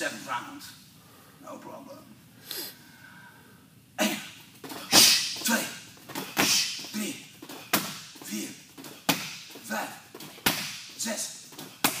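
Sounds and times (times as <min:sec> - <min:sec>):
punches and kicks slapping a shield: 0:07.6 - 0:08.1, 0:09.0 - 0:09.6, 0:10.4 - 0:10.9, 0:11.8 - 0:12.0.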